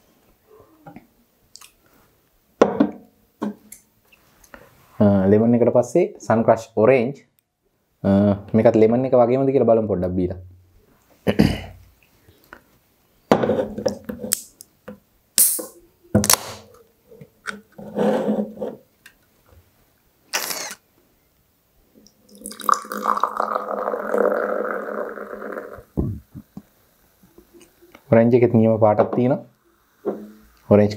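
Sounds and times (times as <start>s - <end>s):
short hissing bursts: 15.4s - 15.8s, 20.3s - 20.8s
soda pouring and fizzing: 22.1s - 25.9s.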